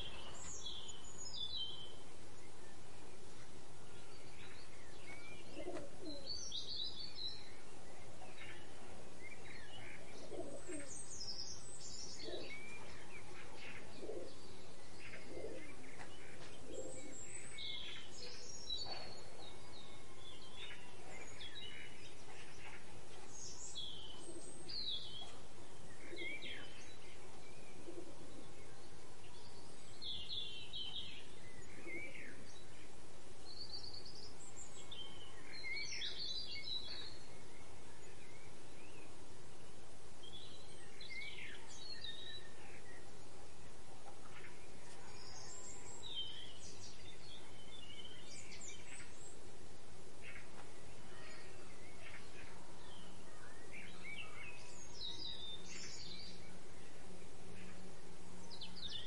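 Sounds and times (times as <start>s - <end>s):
small songbirds chirping: 0.0s - 59.0s
steady outdoor background: 0.0s - 59.0s
low cooing: 5.5s - 6.3s, 10.2s - 10.9s.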